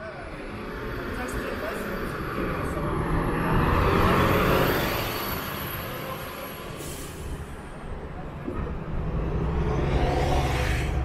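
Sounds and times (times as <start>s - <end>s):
vehicle passing by: 2.0s - 6.8s, 8.7s - 11.0s.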